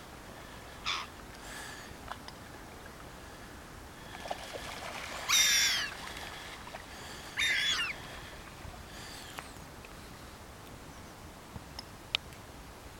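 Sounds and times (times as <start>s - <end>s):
faint outdoor hiss: 0.0s - 12.9s
gull calls: 0.8s - 1.1s, 5.2s - 6.0s, 7.4s - 8.0s.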